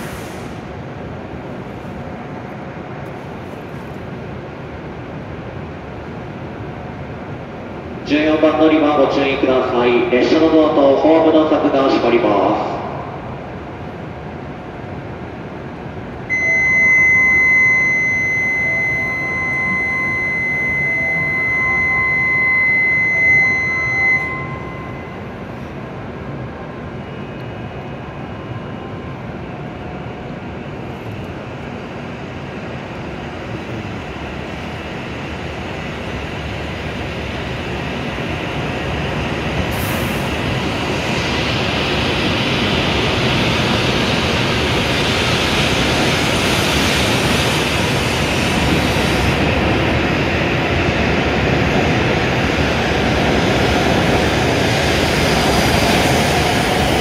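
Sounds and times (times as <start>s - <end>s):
train running noise: 0.0s - 57.0s
high door-closing warning tone: 16.3s - 25.7s.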